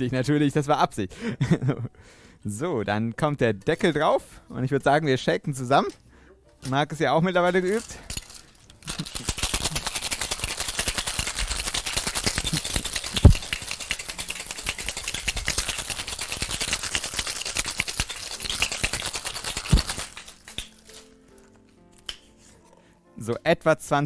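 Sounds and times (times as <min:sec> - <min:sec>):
ice rattling in cocktail shaker: 0:07.4 - 0:21.5.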